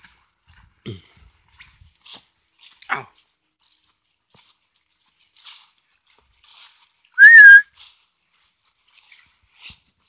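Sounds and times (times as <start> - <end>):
footsteps on dry leaves: 1.5 - 10.0
person whistling: 7.2 - 7.7.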